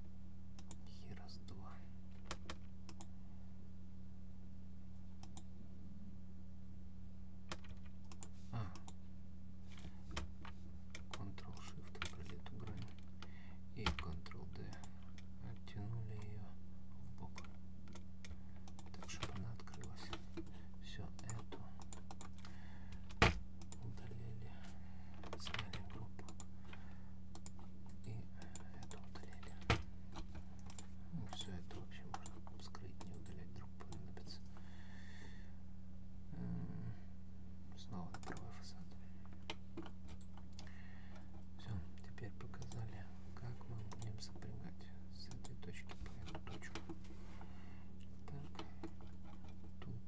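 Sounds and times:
low electrical hum: 0.0s - 50.0s
keyboard clicks: 7.5s - 9.0s, 10.9s - 16.4s, 25.2s - 34.0s, 38.1s - 38.5s.

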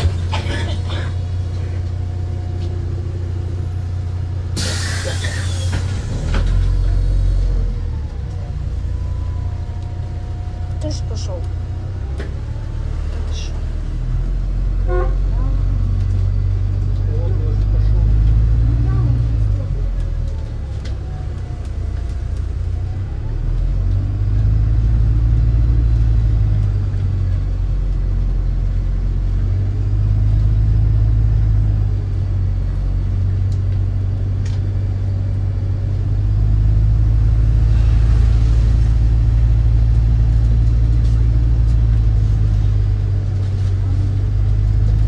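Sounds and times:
bus engine and road rumble: 0.0s - 45.0s
short hiss: 4.6s - 5.8s.

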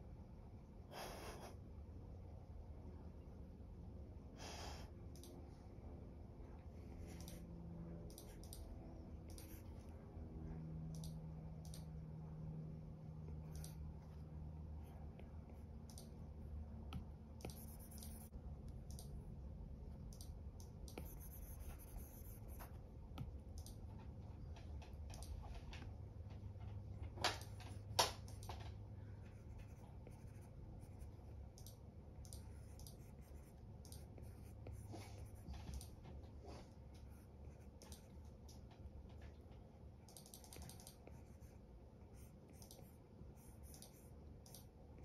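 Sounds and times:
low steady hum: 0.0s - 45.0s.

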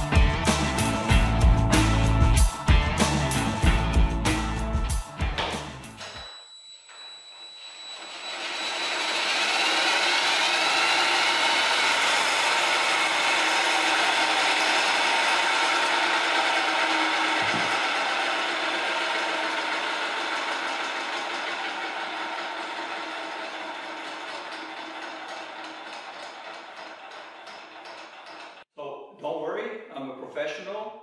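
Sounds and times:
cordless drill spinning blade: 7.4s - 28.6s.

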